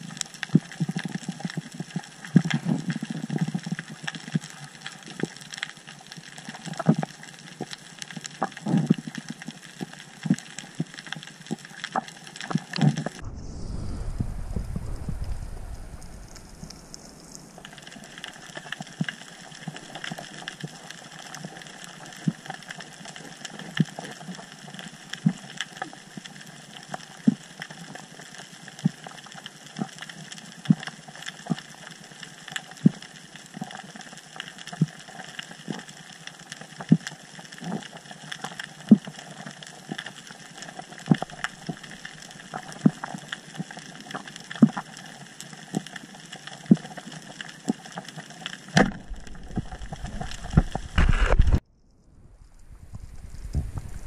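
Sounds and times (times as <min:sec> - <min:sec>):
faint crackling: 0:10.2 - 0:24.5, 0:46.8 - 0:54.0
steady underwater hiss: 0:13.0 - 0:22.1.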